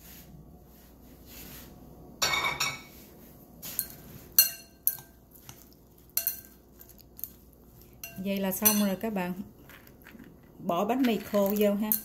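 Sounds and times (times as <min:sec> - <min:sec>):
utensils tossing salad in glass bowl: 0:03.6 - 0:12.0.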